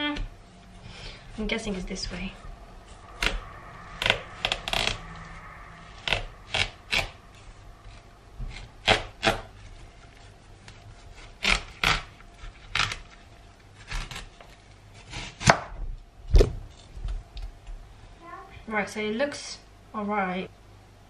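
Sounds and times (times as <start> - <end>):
knife cracking melon rind: 10.7 - 13.2.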